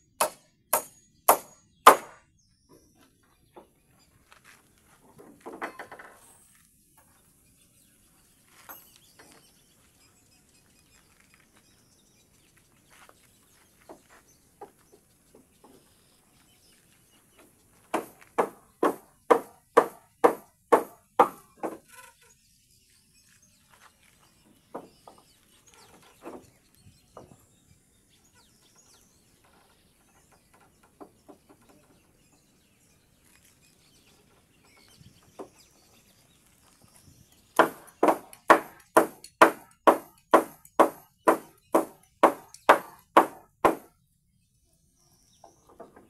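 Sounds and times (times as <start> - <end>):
hammer driving nails into wood: 0.2 - 2.2, 17.9 - 21.8, 37.6 - 43.9.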